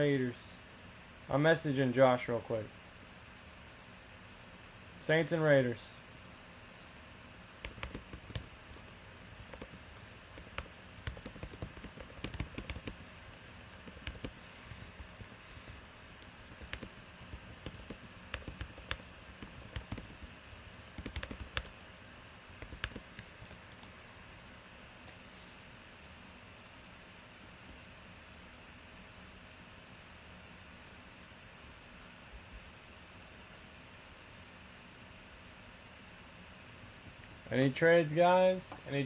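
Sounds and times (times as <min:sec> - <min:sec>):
keyboard typing clicks: 0:07.6 - 0:21.7, 0:22.6 - 0:23.9.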